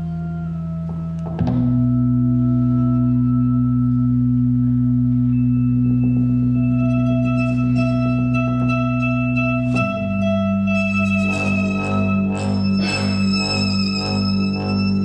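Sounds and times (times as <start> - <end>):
electronic drone of low tones: 0.0 - 15.0.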